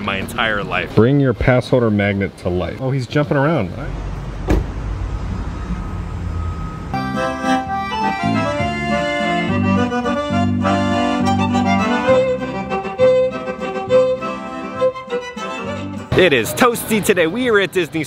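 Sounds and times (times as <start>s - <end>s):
accordion and violin playing: 7.0s - 17.2s.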